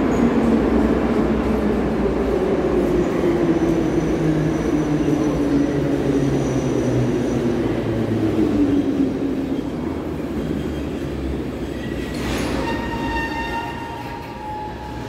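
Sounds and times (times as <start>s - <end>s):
metro train rumbling: 0.0s - 15.0s
wheel and brake squeal: 11.6s - 15.0s.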